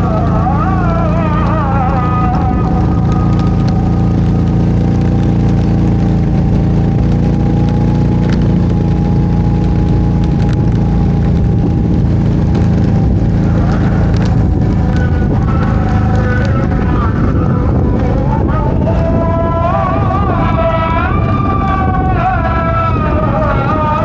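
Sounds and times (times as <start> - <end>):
atv engine running: 0.0 - 24.0
faint sharp clicks: 2.7 - 16.6.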